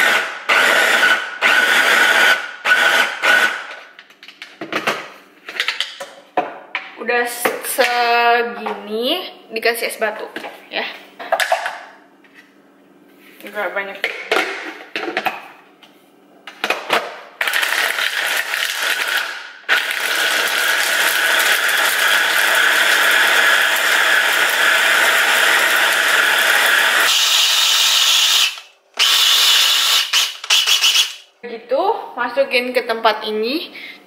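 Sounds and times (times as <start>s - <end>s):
food processor motor running: 0.0s - 3.7s, 17.4s - 31.2s.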